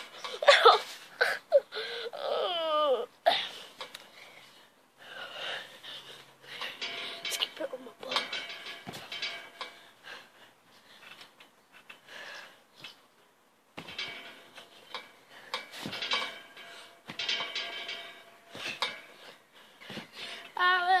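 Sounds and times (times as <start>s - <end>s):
trampoline springs clinking: 0.0s - 2.3s, 3.3s - 4.6s, 5.2s - 10.4s, 13.8s - 21.0s.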